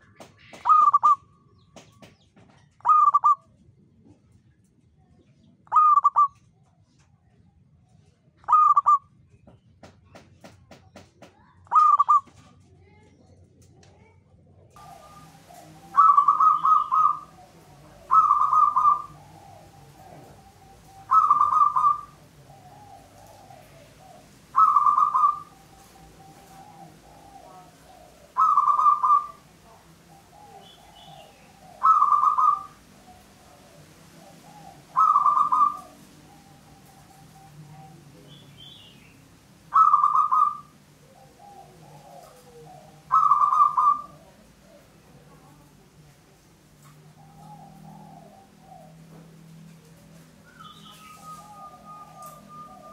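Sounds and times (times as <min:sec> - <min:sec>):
dove cooing: 0:00.0 - 0:01.2, 0:02.7 - 0:03.5, 0:05.7 - 0:06.4, 0:08.4 - 0:09.0, 0:11.7 - 0:12.4, 0:14.7 - 0:52.9
faint low bird calls: 0:00.0 - 0:13.8, 0:14.7 - 0:52.9.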